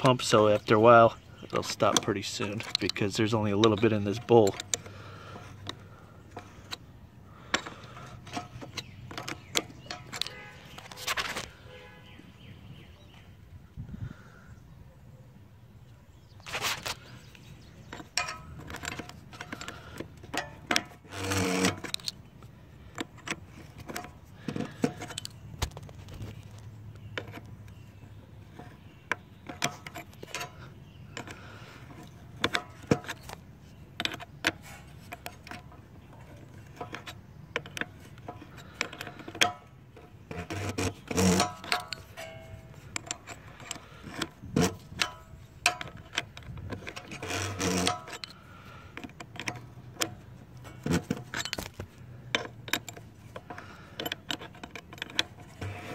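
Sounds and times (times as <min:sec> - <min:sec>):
metal clatters: 0:17.8 - 0:22.2, 0:34.0 - 0:48.4, 0:49.0 - 0:55.9
metallic clicks of wrench: 0:17.9 - 0:25.4, 0:36.6 - 0:55.9.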